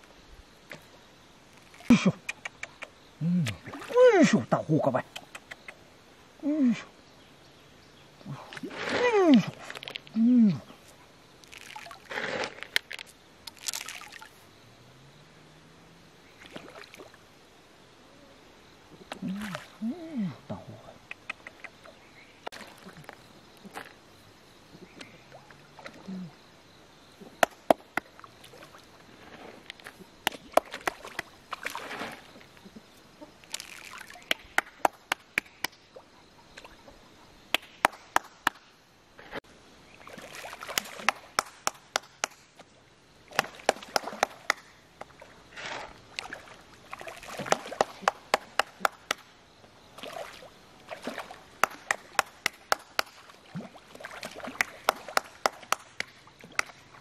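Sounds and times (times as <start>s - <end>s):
fish splashing at water surface: 11.4s - 12.8s, 13.5s - 14.3s, 33.5s - 35.0s, 40.0s - 41.6s, 43.3s - 44.6s, 45.2s - 49.0s, 50.0s - 57.0s
person clapping hands: 34.3s - 35.8s, 37.5s - 38.6s, 40.8s - 42.4s, 43.4s - 44.7s, 47.5s - 49.2s, 51.6s - 53.2s, 54.6s - 56.8s.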